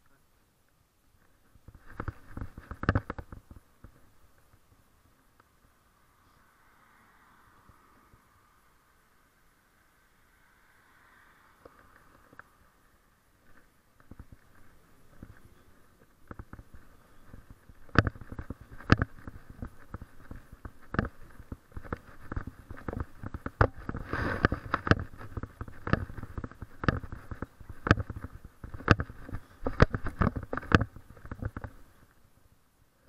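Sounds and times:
steady rustling: 1.1 - 5.8, 11.6 - 32.6.

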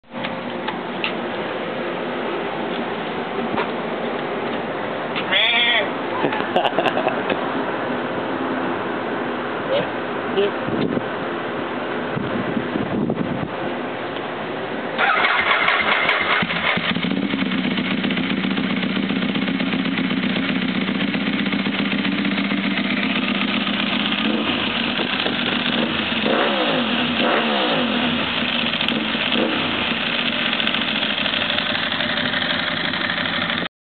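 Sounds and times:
motorcycle engine idling and revving: 15.0 - 33.7.

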